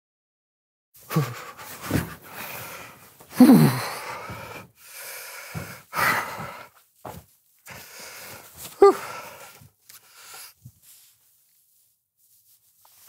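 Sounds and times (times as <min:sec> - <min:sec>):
man huffing and groaning: 0:01.0 - 0:04.7, 0:08.7 - 0:09.6.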